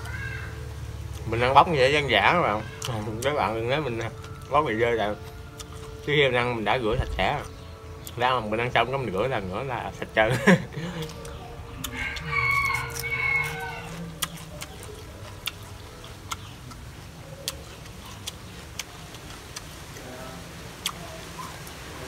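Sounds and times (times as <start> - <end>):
rooster crowing: 0.0 - 0.7, 10.4 - 14.7
chewing clicks: 5.2 - 6.1, 10.9 - 19.8, 20.8 - 21.8.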